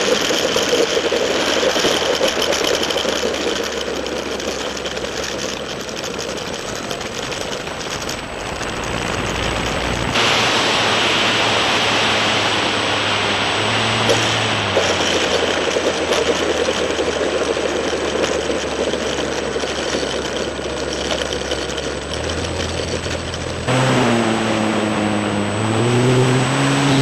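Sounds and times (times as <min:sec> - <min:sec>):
model plane motor and propeller: 0:00.0 - 0:23.7
low hum: 0:00.0 - 0:27.0
wind rushing over microphone: 0:08.7 - 0:15.8.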